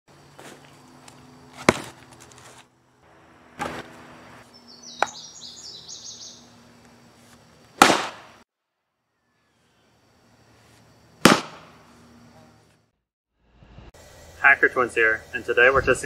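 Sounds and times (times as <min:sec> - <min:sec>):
log knocking on chopping stump: 0:01.6 - 0:02.0
bird chirping: 0:04.5 - 0:06.8.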